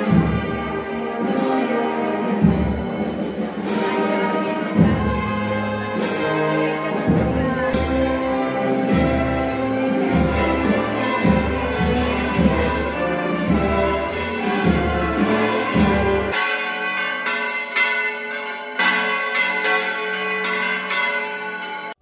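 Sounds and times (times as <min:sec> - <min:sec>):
low band music: 0:00.0 - 0:16.4
church bells ringing: 0:00.0 - 0:22.0.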